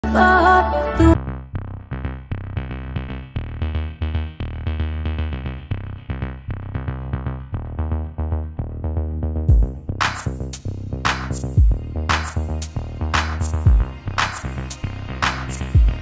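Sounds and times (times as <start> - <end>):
background music with beat: 9.5 - 16.0.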